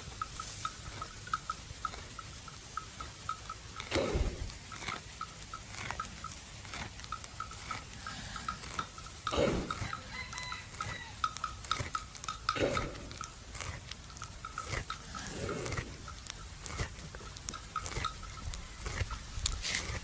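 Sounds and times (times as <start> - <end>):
buffalo chewing cud: 0.0 - 20.0
moist jaw clicks: 0.0 - 20.0
low breathy animal sounds: 3.8 - 5.0, 7.5 - 10.2, 11.7 - 20.0.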